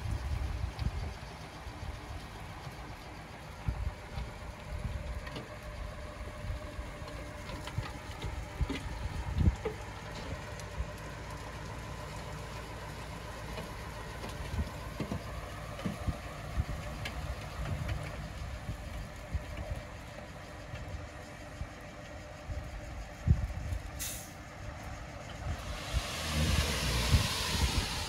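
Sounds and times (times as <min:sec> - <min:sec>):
diesel engine running: 0:00.0 - 0:28.0
low thumps and clanks: 0:13.4 - 0:19.8.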